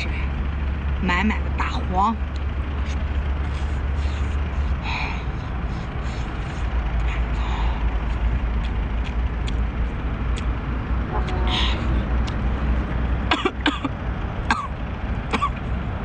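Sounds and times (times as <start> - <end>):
steady low rumble: 0.0 - 16.0
wet sucking and biting: 2.3 - 7.4, 8.0 - 10.5.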